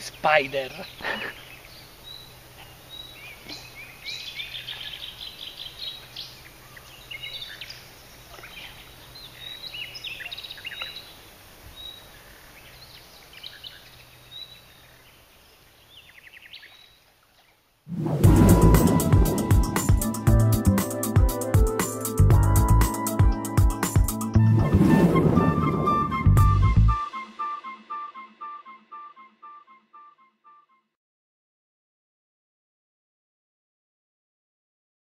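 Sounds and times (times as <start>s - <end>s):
songbirds chirping and trilling: 0.0s - 17.6s
loud music: 18.0s - 24.8s, 25.4s - 29.8s.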